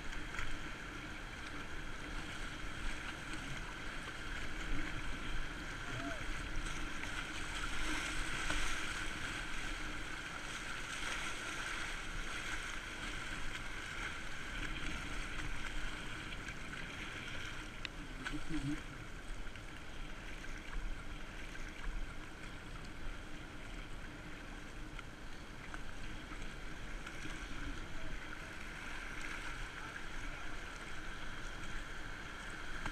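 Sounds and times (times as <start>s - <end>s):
river water rushing: 0.0s - 24.6s.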